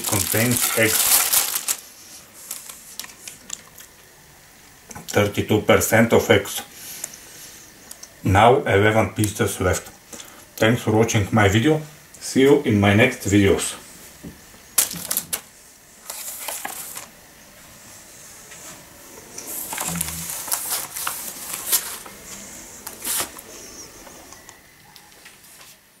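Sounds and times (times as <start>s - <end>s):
paper rustling and crackling: 0.0s - 3.8s, 14.8s - 17.1s, 19.4s - 24.4s.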